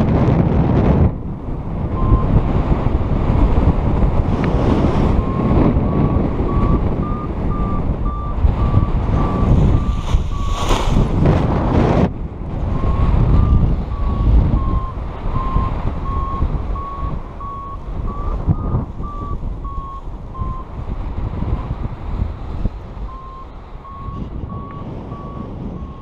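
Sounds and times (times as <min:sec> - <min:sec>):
wind buffeting microphone: 0:00.0 - 0:26.0
variometer beeping: 0:01.8 - 0:10.6, 0:12.6 - 0:20.8, 0:23.0 - 0:26.0.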